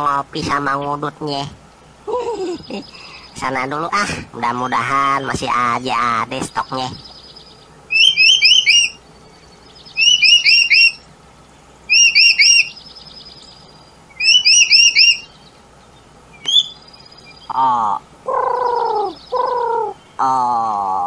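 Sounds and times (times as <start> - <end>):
songbird chirping: 0.0 - 21.0
faint bird trill: 4.4 - 21.0.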